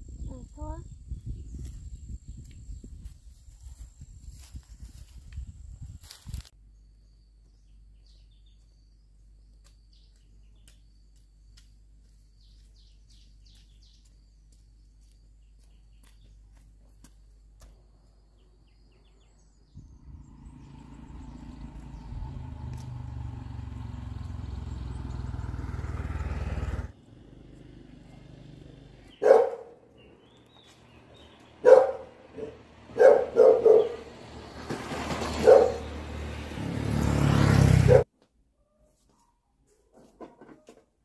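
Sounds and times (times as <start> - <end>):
engine hum: 6.5 - 38.1
motorbike passing: 19.5 - 38.1
dog barking: 29.2 - 29.8, 31.6 - 34.1, 35.4 - 35.8, 37.8 - 38.0.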